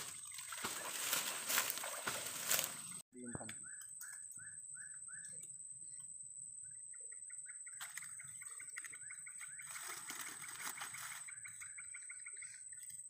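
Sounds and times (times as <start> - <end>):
animals chirping: 0.0 - 5.4.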